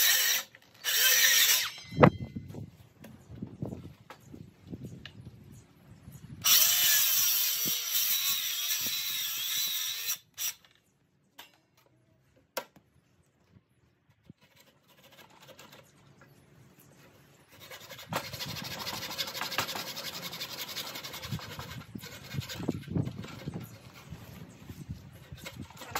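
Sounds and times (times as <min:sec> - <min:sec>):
power tool cutting timber: 0:00.0 - 0:02.0, 0:06.4 - 0:10.6.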